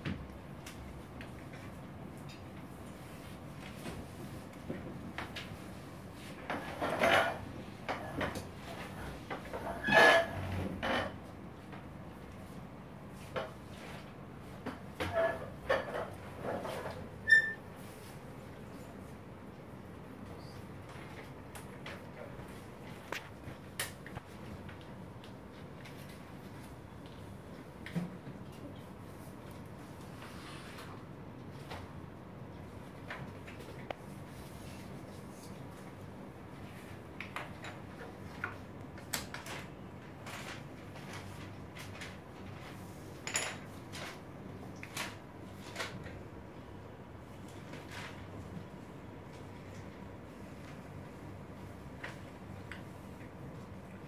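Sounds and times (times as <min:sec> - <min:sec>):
room hum: 0:00.0 - 0:54.0
pens and paper handled: 0:32.9 - 0:46.2.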